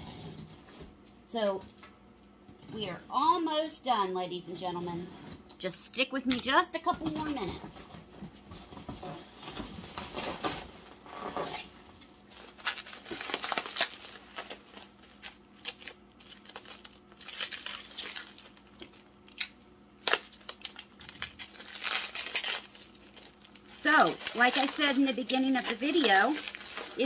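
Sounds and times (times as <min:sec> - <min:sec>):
packing material rustling: 0:08.7 - 0:27.0.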